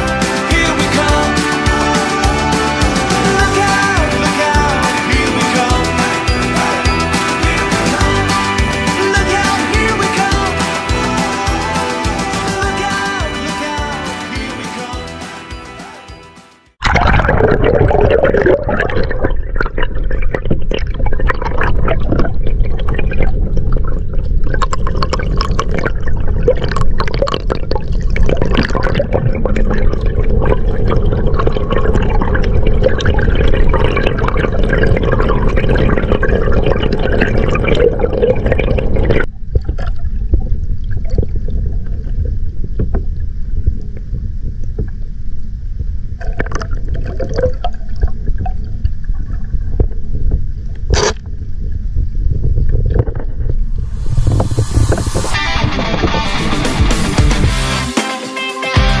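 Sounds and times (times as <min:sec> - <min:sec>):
underwater water rushing: 0:16.8 - 0:57.1.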